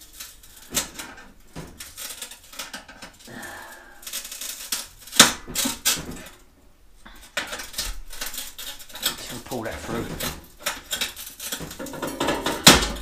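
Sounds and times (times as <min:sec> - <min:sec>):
screwdriver scraping sheet metal: 0:07.3 - 0:13.0.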